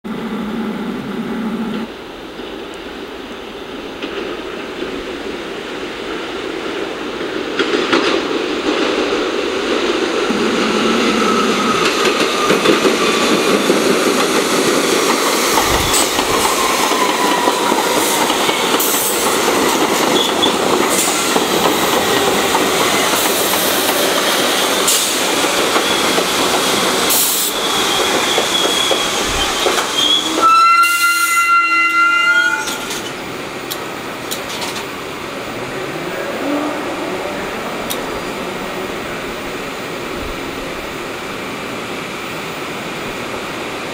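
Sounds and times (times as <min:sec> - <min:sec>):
subway train wheels rumbling: 0:00.0 - 0:43.9
high brake squeal: 0:27.2 - 0:33.2.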